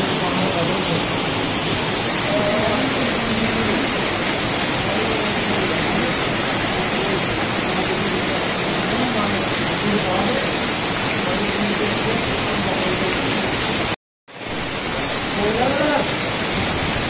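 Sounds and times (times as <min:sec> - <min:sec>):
drain water splashing on ground: 0:00.0 - 0:17.0
heavy rain on pavement: 0:00.0 - 0:17.0.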